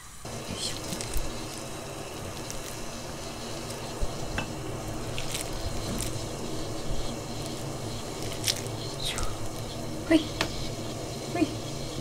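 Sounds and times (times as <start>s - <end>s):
steady background hiss: 0.0s - 12.0s
wet hands squishing rice: 0.4s - 4.3s, 4.9s - 9.6s.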